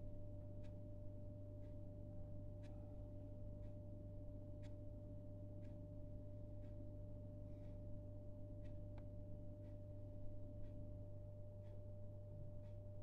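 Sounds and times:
faint electrical hum: 0:00.0 - 0:13.0
faint ticks: 0:04.4 - 0:13.0.

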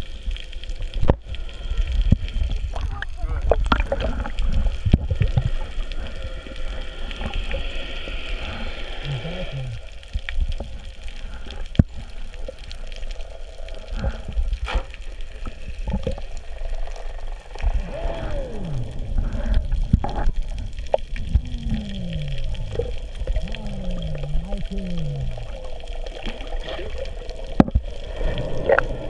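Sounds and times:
underwater rumble and bubbles: 0:00.0 - 0:29.0
gliding tones: 0:16.9 - 0:26.0.

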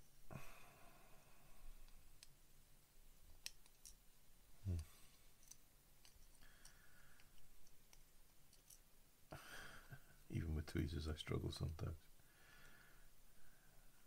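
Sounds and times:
tweezers clicking on plastic parts: 0:03.3 - 0:04.0.

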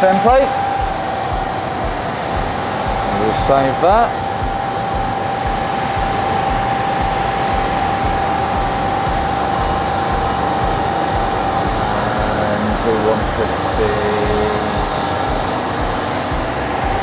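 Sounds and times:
high-pitched whine: 0:00.0 - 0:17.0
workshop machinery whirring: 0:00.0 - 0:17.0.

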